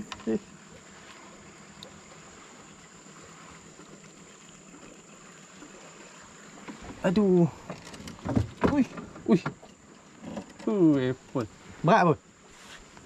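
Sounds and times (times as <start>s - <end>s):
water hissing around boat: 0.0s - 13.0s.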